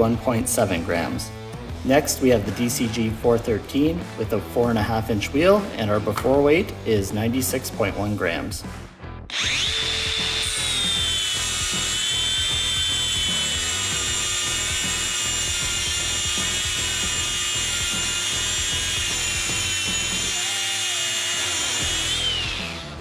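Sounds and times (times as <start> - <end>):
angle grinder grinding metal: 9.3 - 23.0.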